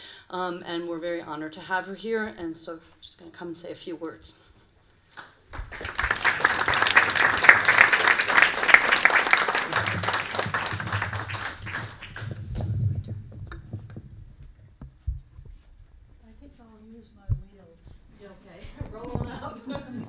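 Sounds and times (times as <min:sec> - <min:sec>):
audience applauding: 0:05.2 - 0:12.8
microphone stand bumps: 0:12.3 - 0:15.5.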